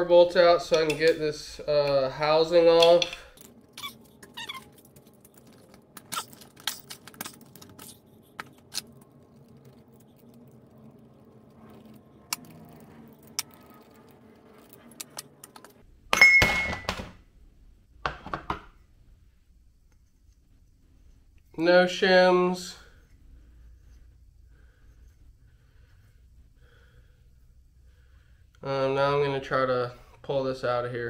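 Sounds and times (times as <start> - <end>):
bolts clinking in metal pan: 2.6 - 3.4.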